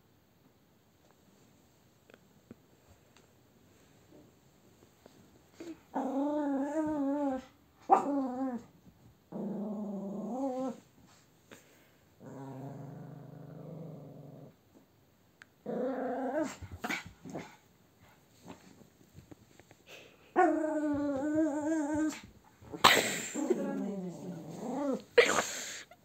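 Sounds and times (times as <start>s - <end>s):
dog growling: 5.6s - 8.7s, 9.3s - 10.8s, 12.2s - 14.6s, 15.6s - 17.5s, 20.3s - 25.2s.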